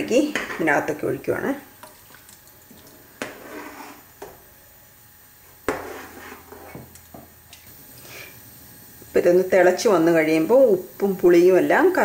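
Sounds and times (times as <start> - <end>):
stirring through liquid: 1.8 - 4.4.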